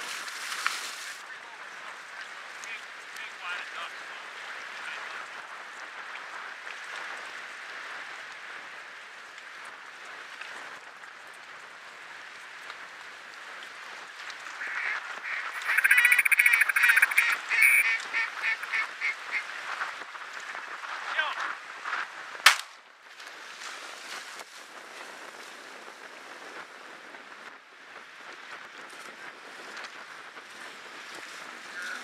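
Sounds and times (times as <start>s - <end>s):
duck calls quacking: 14.6s - 19.5s
background hiss: 14.6s - 19.8s.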